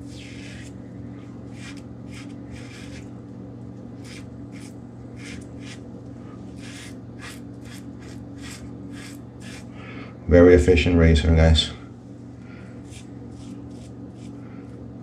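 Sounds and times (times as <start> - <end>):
razor scraping stubble: 0.0 - 3.1, 4.0 - 9.8, 12.8 - 14.4
steady low hum: 0.0 - 15.0.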